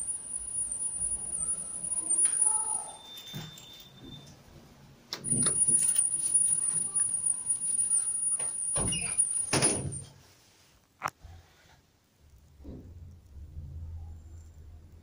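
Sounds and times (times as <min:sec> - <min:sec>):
lift doors sliding: 0:05.2 - 0:10.2.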